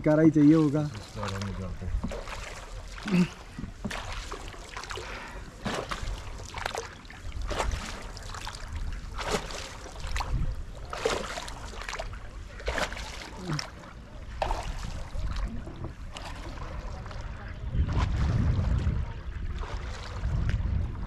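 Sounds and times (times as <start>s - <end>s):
paddle splashing water: 0.0s - 21.0s
low rumble: 16.7s - 21.0s.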